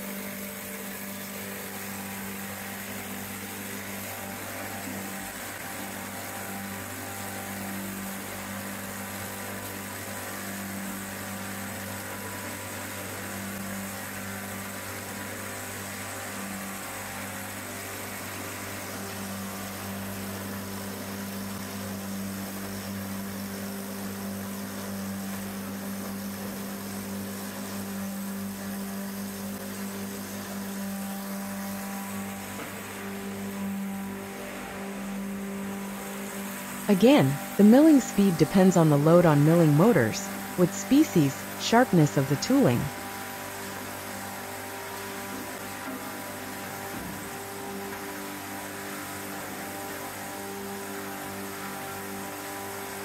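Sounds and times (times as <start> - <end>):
electric motor humming: 0.0 - 37.6.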